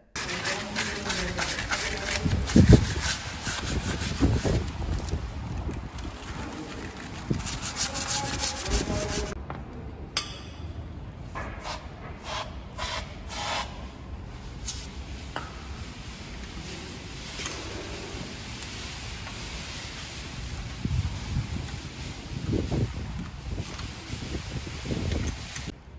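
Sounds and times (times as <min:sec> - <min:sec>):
aerosol spray bursts: 0:11.6 - 0:13.8, 0:14.6 - 0:14.9.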